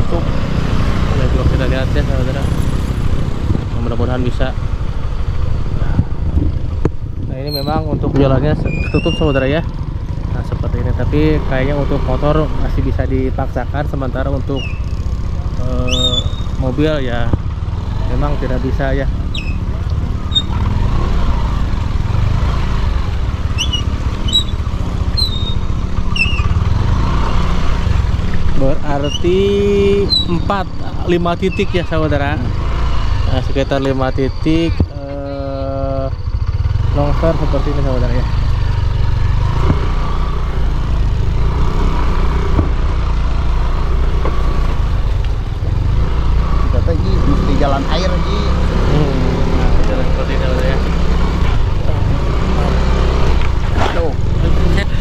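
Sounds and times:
motorcycle engine running: 0:00.0 - 0:55.0
bird chirping: 0:07.4 - 0:07.8, 0:14.5 - 0:15.0, 0:15.8 - 0:16.6, 0:19.2 - 0:20.6, 0:23.5 - 0:26.7, 0:28.2 - 0:30.8.

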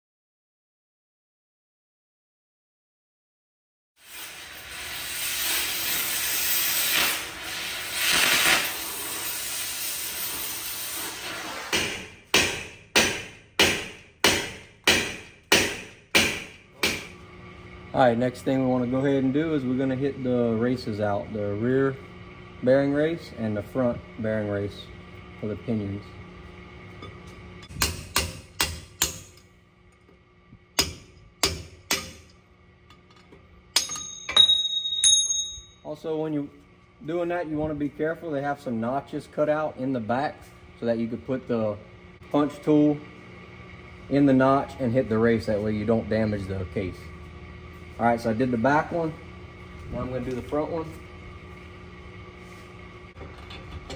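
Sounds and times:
compressed air hissing: 0:04.0 - 0:12.0
hammer striking steel punch: 0:11.7 - 0:17.2, 0:27.6 - 0:29.4, 0:30.8 - 0:32.4, 0:33.7 - 0:35.7
ringing metallic tone: 0:33.8 - 0:36.0.

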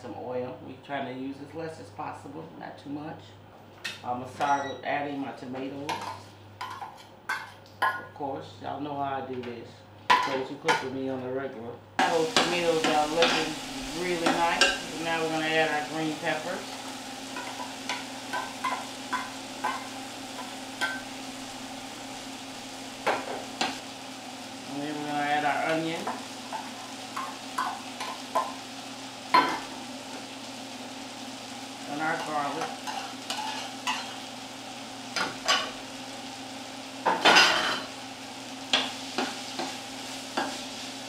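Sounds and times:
vegetables sizzling in a pan: 0:03.8 - 0:08.1, 0:12.0 - 0:41.0
utensil scraping a pan: 0:32.2 - 0:34.2.

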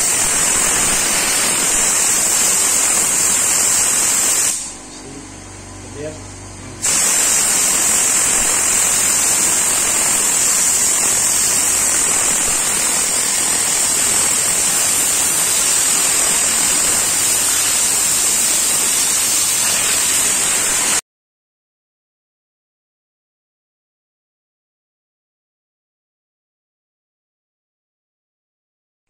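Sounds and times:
compressed air gun hissing: 0:00.0 - 0:04.8, 0:06.8 - 0:21.0.

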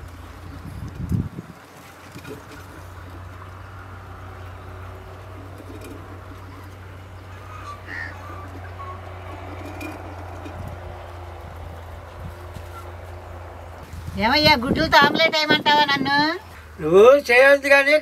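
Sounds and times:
steady low hum: 0:00.0 - 0:16.8
birds chirping: 0:00.0 - 0:18.0.

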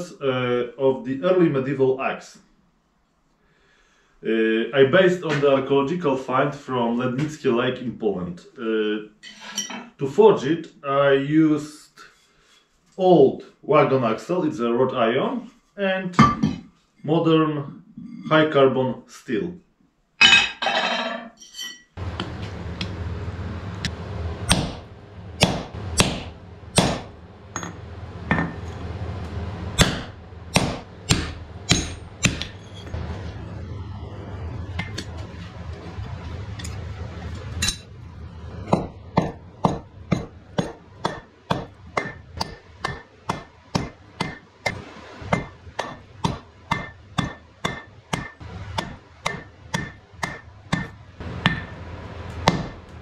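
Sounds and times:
low hum: 0:22.0 - 0:53.0
hammer ringing on anvil: 0:26.8 - 0:28.7, 0:30.6 - 0:32.8, 0:45.4 - 0:51.8.

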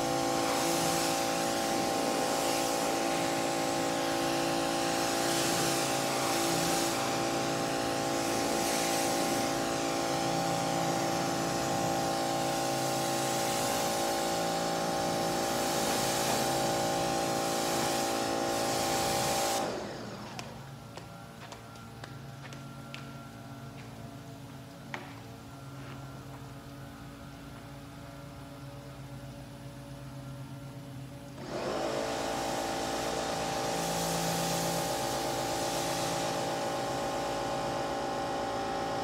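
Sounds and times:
water jet hissing: 0:00.0 - 0:20.4
pressure washer motor humming: 0:00.0 - 0:39.0.

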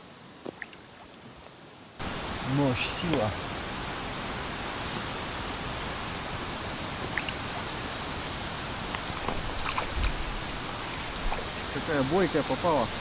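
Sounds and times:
lake water at bank: 0:00.0 - 0:13.0
wind: 0:00.0 - 0:13.0
ticks and splashes: 0:00.4 - 0:01.3, 0:02.8 - 0:03.8, 0:07.0 - 0:07.8, 0:08.8 - 0:12.4.

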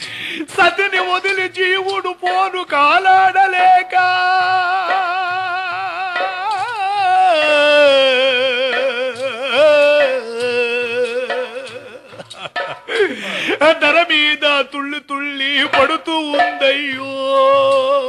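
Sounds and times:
faint low drum beat: 0:00.5 - 0:13.0
person singing long wavering notes: 0:03.9 - 0:12.2.

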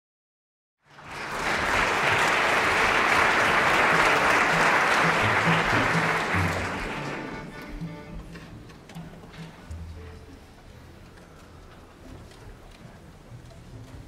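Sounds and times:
audience applauding: 0:00.9 - 0:07.9.

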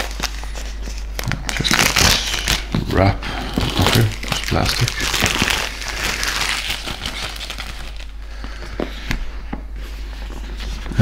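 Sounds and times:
plastic shrink-wrap crinkling: 0:00.0 - 0:08.7.

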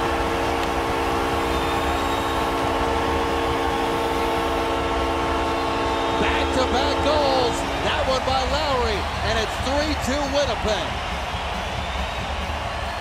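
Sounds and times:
arena goal horn: 0:00.0 - 0:09.4
crowd cheering: 0:00.0 - 0:13.0.

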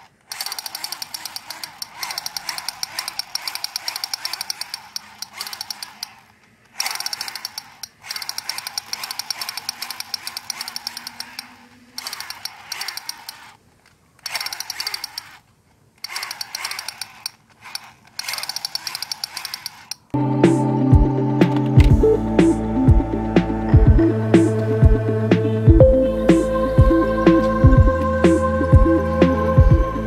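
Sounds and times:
toy gun electronic rattle: 0:00.0 - 0:20.2.

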